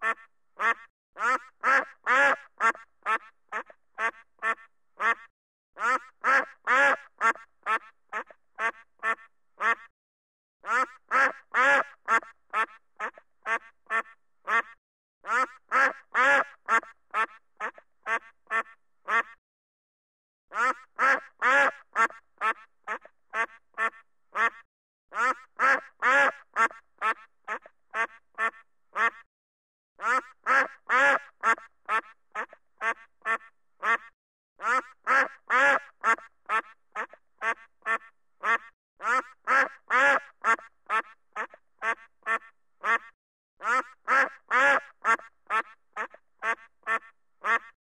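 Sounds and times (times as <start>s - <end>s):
duck quacking: 0.0s - 9.9s, 10.6s - 19.4s, 20.5s - 29.3s, 30.0s - 47.8s.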